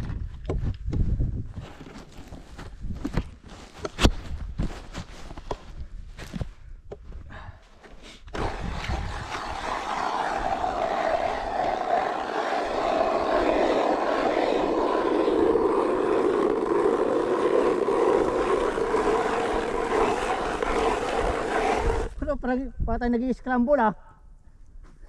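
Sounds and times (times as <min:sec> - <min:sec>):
power drill boring through ice: 0:08.4 - 0:22.2.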